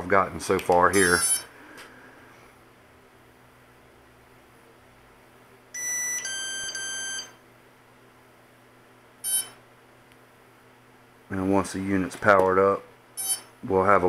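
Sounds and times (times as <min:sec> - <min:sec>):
electronic beeps: 0:01.0 - 0:01.5, 0:09.2 - 0:09.6, 0:13.2 - 0:13.5.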